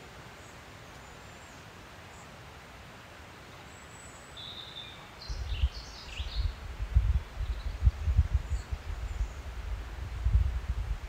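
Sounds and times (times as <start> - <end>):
open-air background hiss: 0.0 - 11.0
small birds calling: 3.4 - 9.7
wind buffeting microphone: 5.3 - 11.0.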